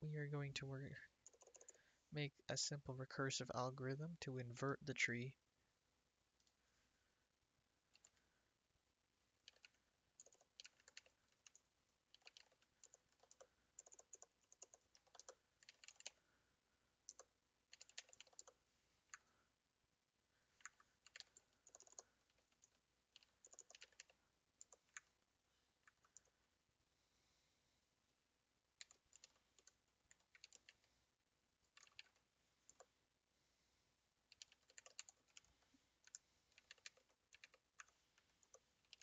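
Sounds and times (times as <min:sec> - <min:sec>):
typing on a keyboard: 0:01.2 - 0:01.8, 0:07.9 - 0:08.2, 0:09.4 - 0:16.2, 0:17.1 - 0:19.3, 0:20.6 - 0:25.2, 0:28.8 - 0:30.8, 0:31.6 - 0:32.9, 0:34.3 - 0:39.0.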